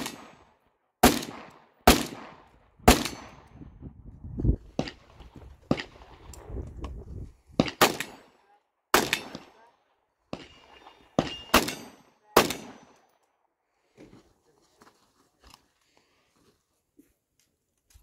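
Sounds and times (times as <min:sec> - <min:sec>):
rifle shots: 0:00.0 - 0:03.4, 0:07.6 - 0:09.6, 0:10.3 - 0:13.0.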